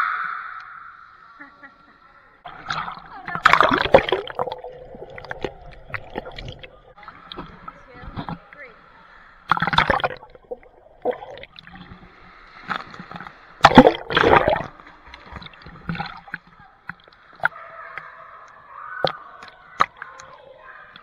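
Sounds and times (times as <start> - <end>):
rush of bubbles and splashing: 2.5 - 8.4, 9.4 - 16.4
muffled underwater gurgling: 2.5 - 8.6, 9.5 - 12.1, 13.1 - 16.5.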